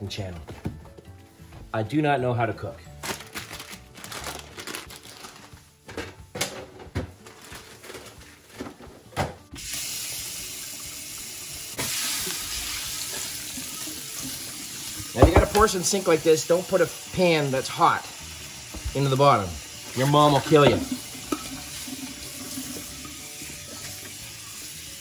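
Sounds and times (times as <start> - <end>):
faucet water running into sink: 9.6 - 25.0
containers clattering: 15.2 - 15.8, 20.2 - 21.6.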